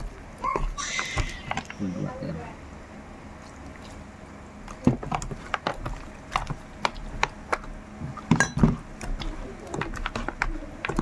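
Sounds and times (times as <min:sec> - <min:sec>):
meat being kneaded wet smacks: 0:03.3 - 0:11.0.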